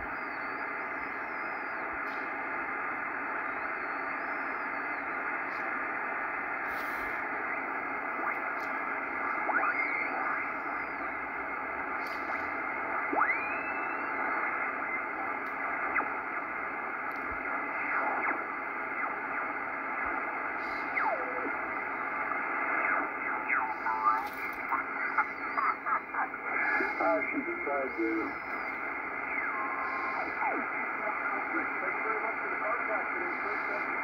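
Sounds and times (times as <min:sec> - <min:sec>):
radio static hiss: 0:00.0 - 0:34.0
radio whistles sliding in pitch: 0:00.1 - 0:02.5, 0:08.4 - 0:16.3, 0:26.5 - 0:32.1.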